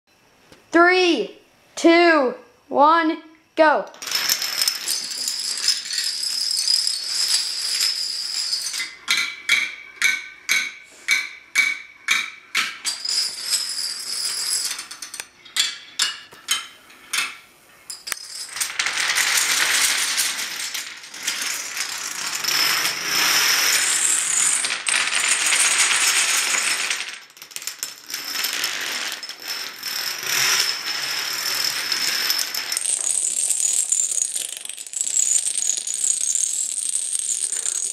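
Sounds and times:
dominoes clattering: 3.9s - 37.9s.

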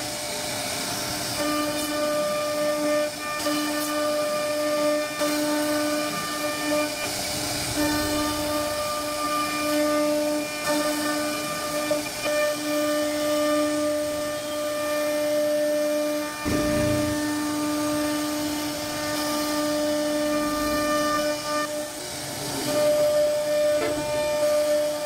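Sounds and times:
router spindle whining: 0.0s - 25.0s
low rumble: 16.5s - 17.5s.

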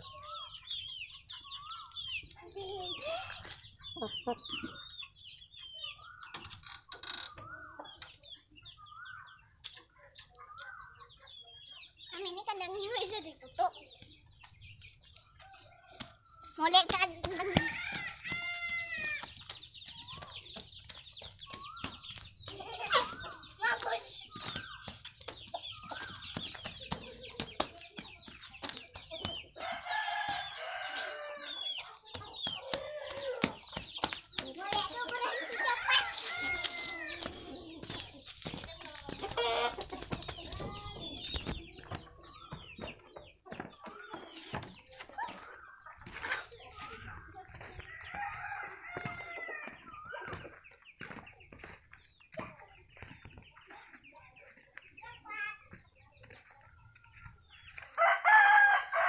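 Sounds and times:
chickens calling: 0.0s - 59.0s
rooster crowing: 48.1s - 49.8s, 58.0s - 59.0s.

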